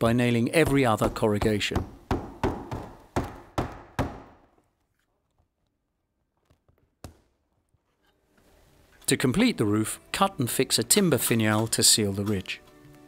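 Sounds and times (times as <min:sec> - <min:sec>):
hammer driving nails: 0:00.6 - 0:04.6.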